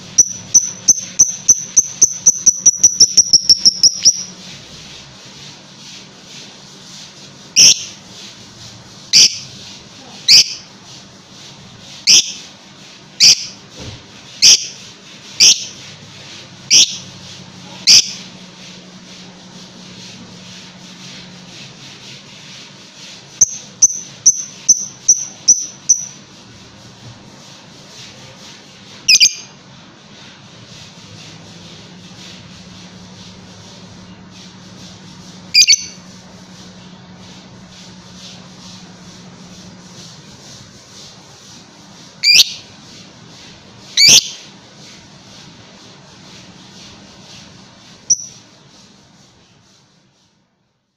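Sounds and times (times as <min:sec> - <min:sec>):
lovebird chirping shrilly: 0:00.2 - 0:04.3, 0:07.6 - 0:07.9, 0:12.1 - 0:12.4, 0:13.2 - 0:13.6, 0:15.4 - 0:15.8, 0:16.7 - 0:17.0, 0:23.4 - 0:26.2, 0:29.1 - 0:29.5, 0:35.6 - 0:36.0, 0:42.2 - 0:42.6, 0:44.0 - 0:44.4, 0:48.1 - 0:48.4.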